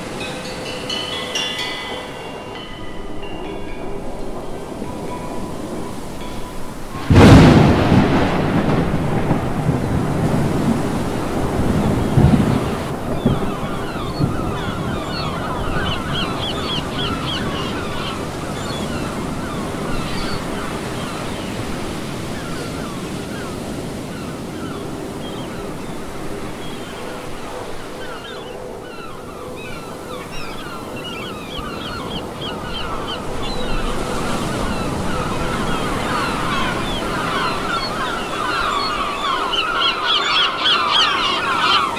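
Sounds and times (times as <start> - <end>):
wind: 0.0 - 41.9.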